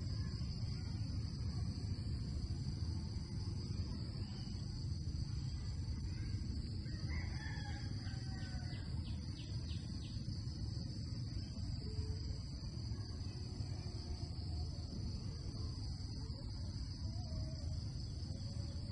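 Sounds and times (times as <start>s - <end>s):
high-pitched insect chorus: 0.0s - 18.9s
distant rooster crowing: 6.8s - 9.5s.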